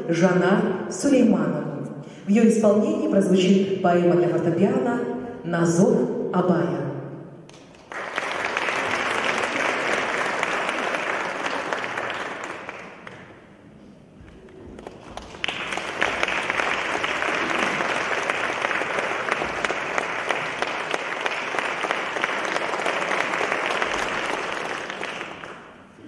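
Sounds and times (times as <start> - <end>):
audience applause: 7.5 - 13.4, 14.3 - 26.0.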